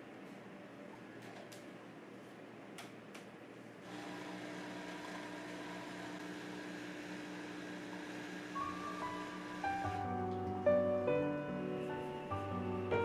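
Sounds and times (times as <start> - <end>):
espresso machine pump humming: 3.8 - 10.1.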